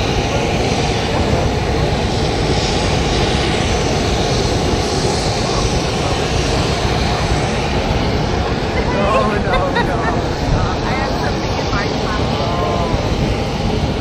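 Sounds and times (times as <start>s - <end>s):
helicopter engines and rotors: 0.0s - 14.0s.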